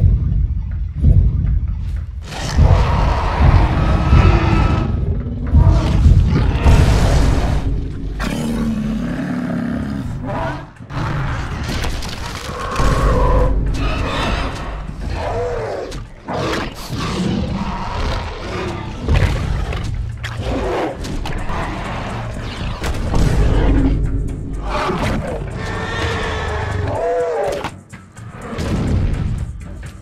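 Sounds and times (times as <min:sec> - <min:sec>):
dinosaur roars and growls: 0:02.2 - 0:28.8
heavy booming thuds: 0:02.5 - 0:08.4.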